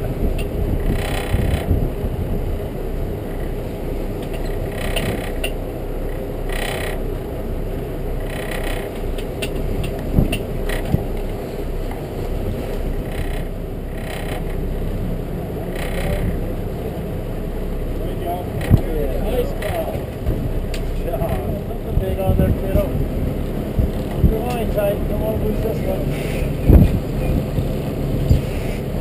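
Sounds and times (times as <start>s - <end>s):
steady low rumble: 0.0s - 29.0s
fishing reel clicking and whirring: 4.3s - 5.6s, 6.5s - 7.0s, 8.2s - 9.6s, 13.0s - 14.6s.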